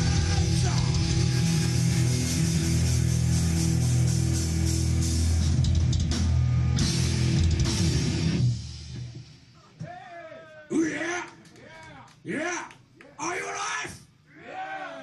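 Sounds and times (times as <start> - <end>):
heavy metal band playing live: 0.0 - 9.3.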